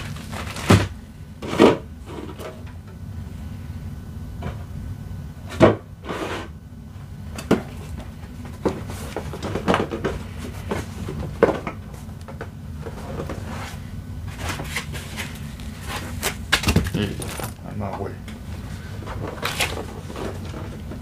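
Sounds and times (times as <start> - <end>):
packing paper crinkle: 0.0 - 0.9.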